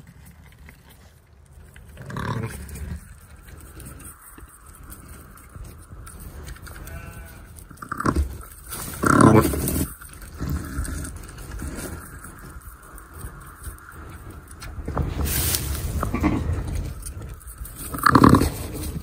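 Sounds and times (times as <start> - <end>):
sheep bleating: 6.7 - 8.1.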